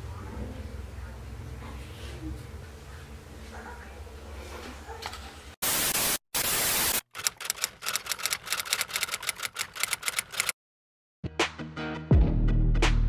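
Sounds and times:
static hiss bursts: 5.6s - 7.1s
typewriter key clacks: 7.1s - 10.6s.

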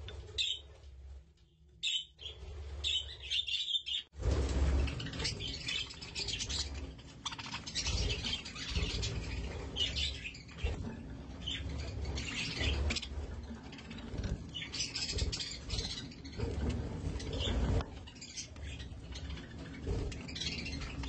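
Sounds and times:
birds scratching in wood shavings: 0.0s - 21.0s
budgerigars chirping: 5.2s - 16.5s.

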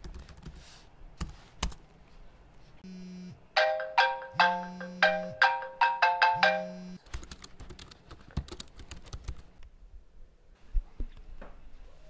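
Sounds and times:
phone alarm chiming: 3.6s - 7.0s.

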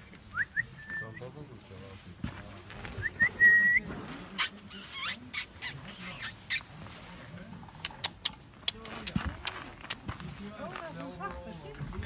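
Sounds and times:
short scratchy noises: 4.2s - 6.9s.

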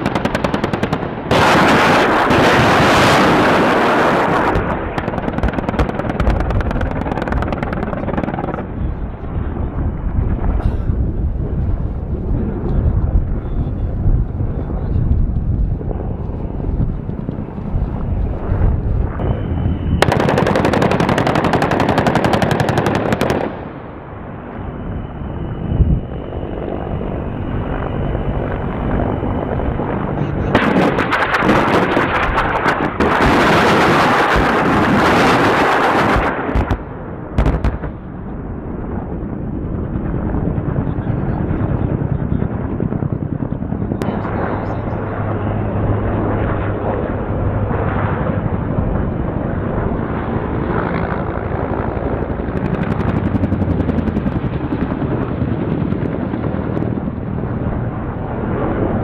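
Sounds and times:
rapid automatic gunfire: 0.0s - 2.4s, 4.9s - 8.5s, 20.0s - 23.6s.

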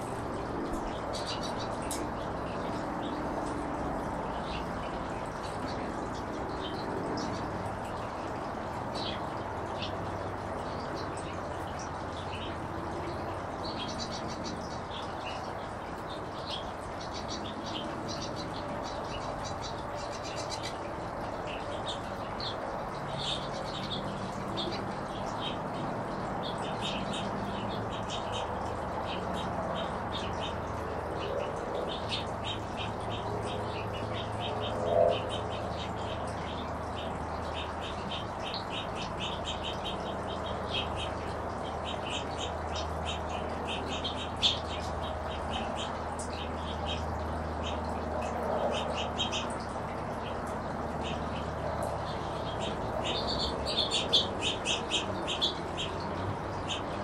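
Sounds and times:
finches chirping: 13.6s - 57.0s.

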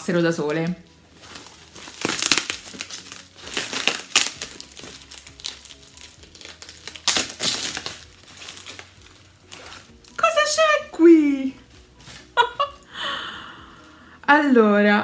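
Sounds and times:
plastic wrapping crinkling: 0.0s - 13.0s.

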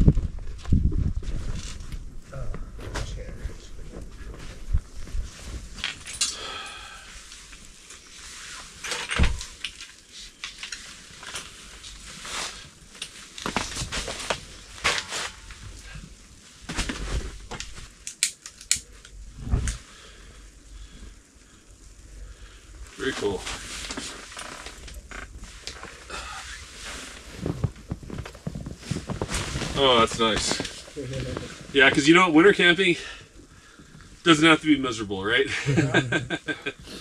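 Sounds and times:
crackling clicks: 8.8s - 12.1s, 12.9s - 15.9s, 16.8s - 19.9s.

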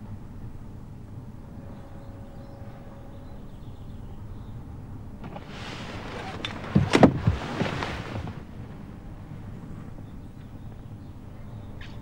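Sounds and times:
soft knocks: 5.2s - 8.5s
clothing rustling on car seat: 5.2s - 8.8s.

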